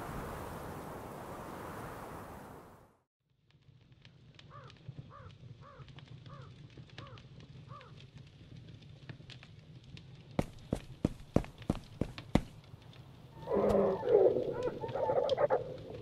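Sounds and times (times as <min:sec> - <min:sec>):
crow cawing: 0:04.5 - 0:08.0, 0:13.4 - 0:16.0.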